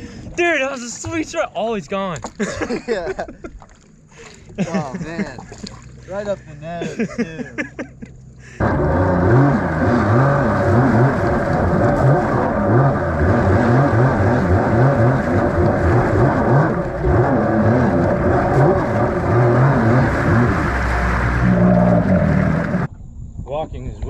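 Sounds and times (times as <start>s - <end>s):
water and wind noise: 0.0s - 24.0s
jet ski engine running: 8.0s - 22.9s.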